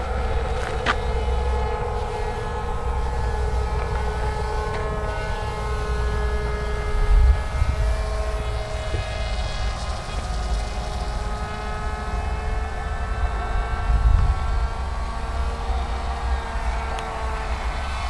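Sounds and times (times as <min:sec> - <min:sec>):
model plane motor whining: 0:00.0 - 0:18.0
wind rumble on microphone: 0:00.0 - 0:18.0.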